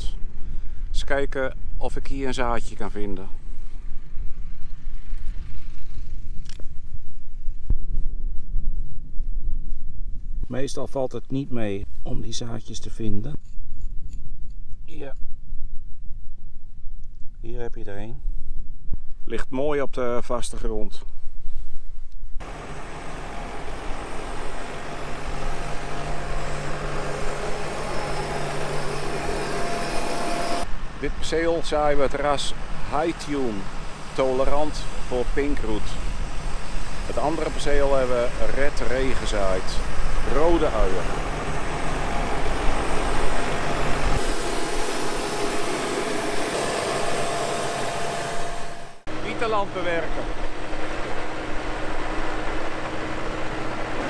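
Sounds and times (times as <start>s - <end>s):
high whine: 22.1s - 54.0s
tractor engine running: 36.3s - 48.3s.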